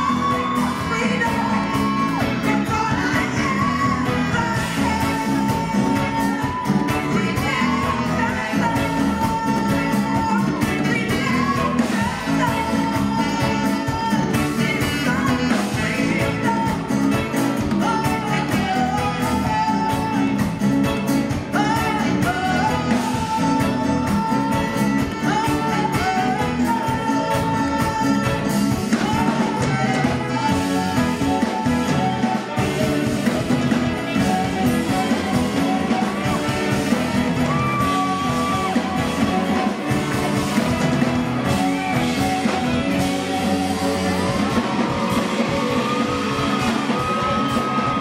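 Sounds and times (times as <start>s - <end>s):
live band playing: 0.0s - 48.0s
woman singing: 0.0s - 48.0s.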